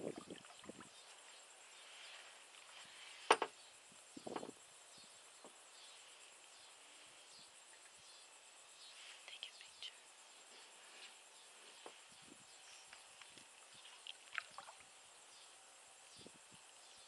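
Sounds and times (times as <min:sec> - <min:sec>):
faint outdoor hiss: 0:00.0 - 0:17.0.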